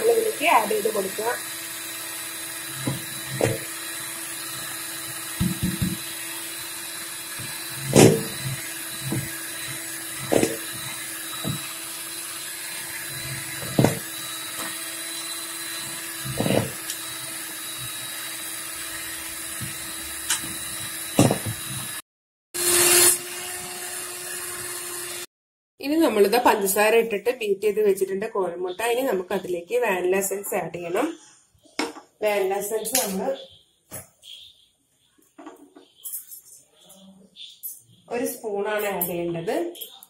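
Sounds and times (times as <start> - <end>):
electric hand mixer running: 0.0 - 22.0, 22.6 - 25.3.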